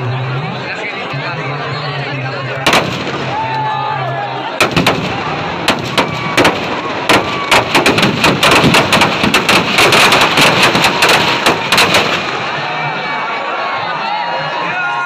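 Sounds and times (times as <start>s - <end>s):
firecrackers banging: 2.6s - 3.6s, 4.6s - 12.8s.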